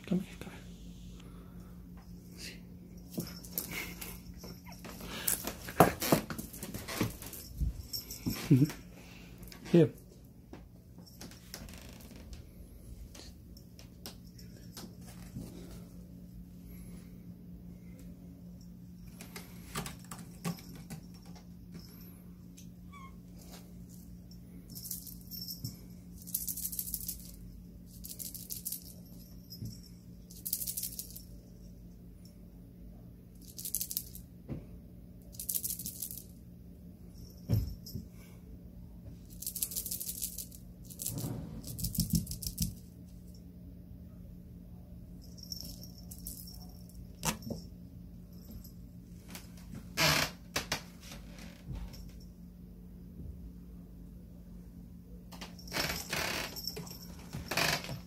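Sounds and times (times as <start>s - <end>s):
faint low hum: 0.0s - 58.0s
small bell jingling: 2.1s - 5.7s, 6.3s - 8.9s, 19.8s - 31.8s, 45.2s - 49.0s, 55.6s - 58.0s.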